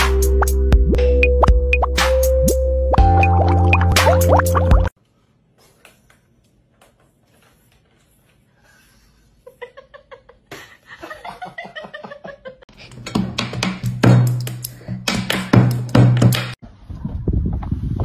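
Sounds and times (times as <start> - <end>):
loud music with heavy bass: 0.0 - 4.9
person laughing: 9.4 - 12.6.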